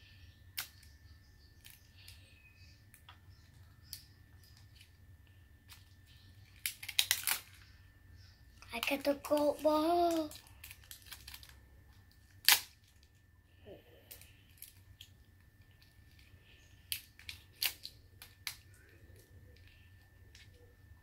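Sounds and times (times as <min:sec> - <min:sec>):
plastic wrapping clicks and crinkles: 0:05.6 - 0:07.7, 0:08.6 - 0:13.3, 0:14.1 - 0:20.6.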